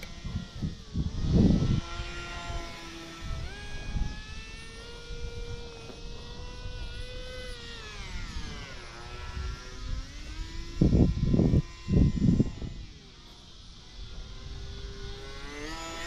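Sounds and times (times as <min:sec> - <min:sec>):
model plane motor buzzing: 0:00.0 - 0:16.0.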